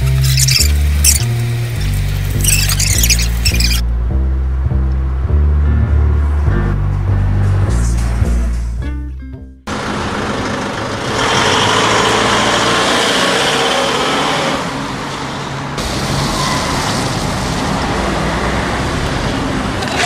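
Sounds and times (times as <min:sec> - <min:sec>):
music track: 0:00.0 - 0:09.7
city traffic noise: 0:00.0 - 0:20.0.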